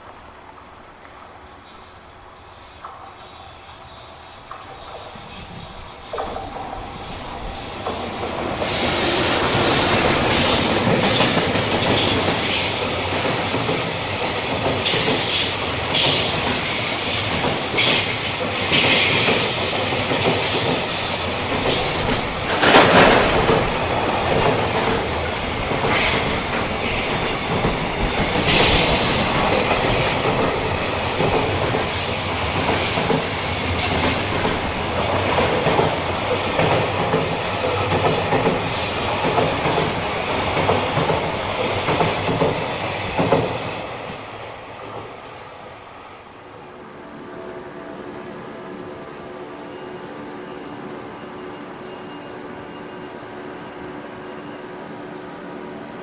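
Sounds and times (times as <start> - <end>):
train wheels clattering over rail joints: 4.4 - 45.2.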